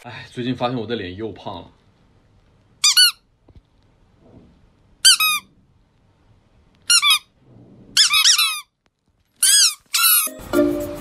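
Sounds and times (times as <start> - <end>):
squeaky toy squeaking: 2.8 - 3.3, 5.0 - 5.5, 6.9 - 7.3, 8.0 - 8.8, 9.4 - 10.4.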